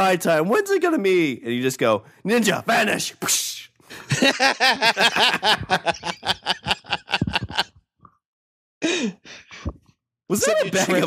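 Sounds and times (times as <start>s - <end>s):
man laughing hard: 3.9s - 7.8s.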